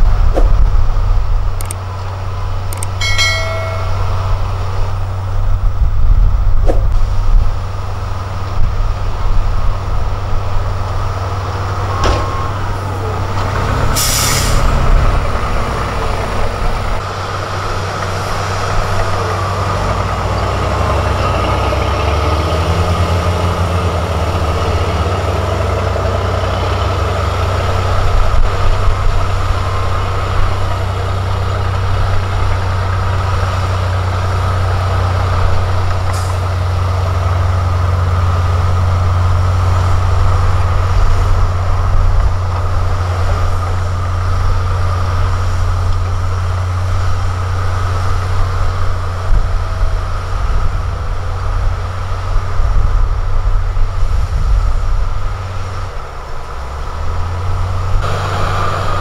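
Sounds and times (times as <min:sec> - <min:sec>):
diesel engine droning: 0:00.0 - 0:59.0
air hiss: 0:13.8 - 0:15.0.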